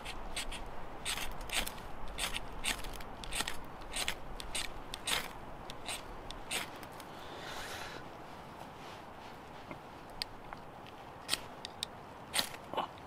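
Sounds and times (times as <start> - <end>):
fire steel rasping strokes: 0.0 - 8.1.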